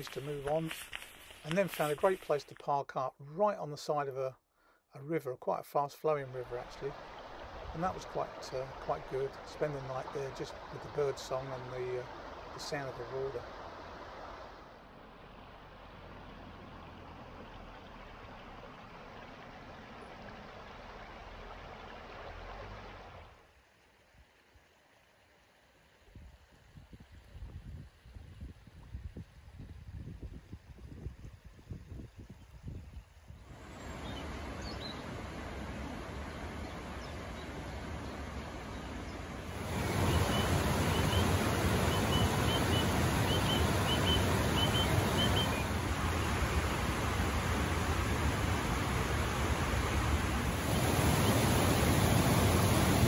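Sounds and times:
river rushing over rocks: 0:33.5 - 0:53.0.

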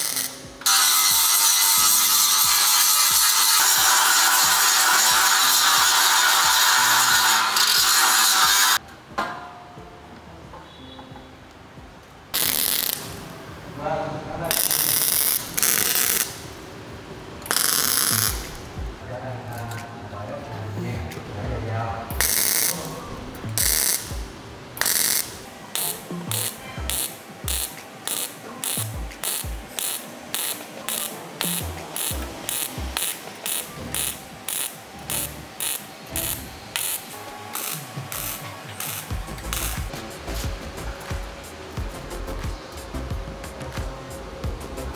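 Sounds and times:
hand tool rasping strokes: 0:00.0 - 0:08.8.

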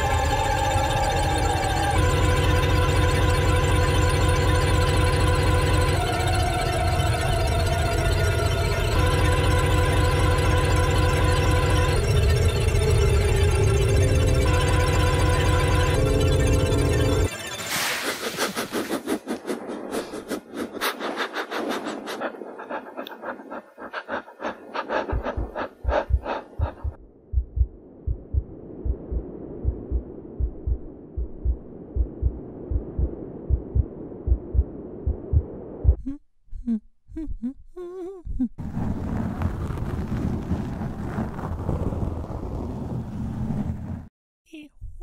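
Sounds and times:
low hum: 0:00.0 - 0:44.0
heartbeat-like thumping: 0:19.1 - 0:37.5.

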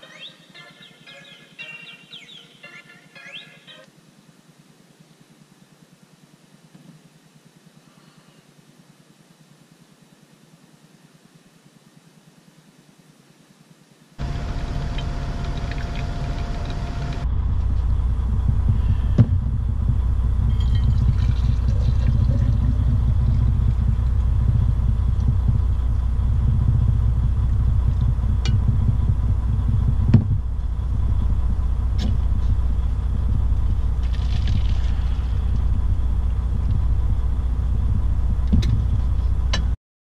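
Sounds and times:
diesel truck engine idling: 0:14.2 - 0:39.8.

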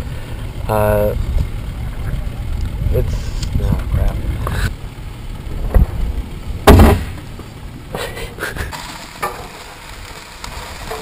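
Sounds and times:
loud sharp thump: 0:06.6 - 0:07.2.

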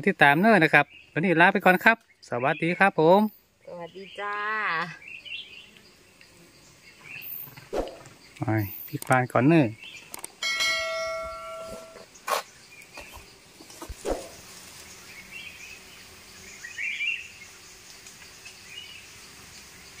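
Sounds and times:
sharp click: 0:07.8 - 0:09.3, 0:10.0 - 0:10.4
bell-like ding: 0:10.4 - 0:12.0
faint bird chirps: 0:10.8 - 0:19.1.

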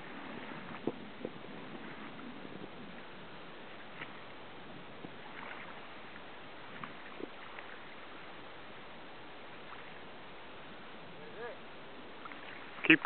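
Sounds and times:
person swimming splashing: 0:05.2 - 0:05.8.

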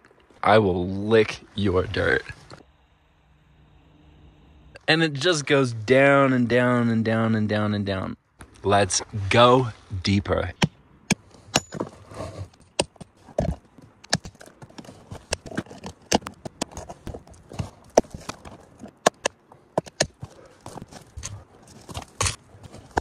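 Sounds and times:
hammer striking steel chisel: 0:10.6 - 0:11.9
tools and rock clinking: 0:11.1 - 0:23.0.

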